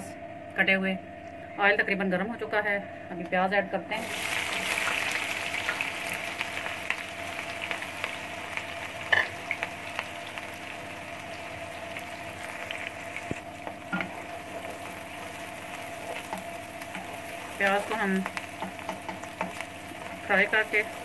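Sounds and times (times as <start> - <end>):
onions sizzling in hot oil: 4.0 - 21.0
spatula stirring: 11.3 - 21.0.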